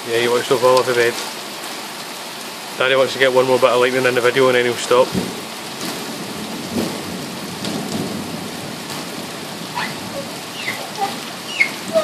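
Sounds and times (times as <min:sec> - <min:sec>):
heavy rain falling: 0:00.0 - 0:12.0
raindrops hitting window glass: 0:00.0 - 0:12.0
low rumble of thunder: 0:05.0 - 0:12.0.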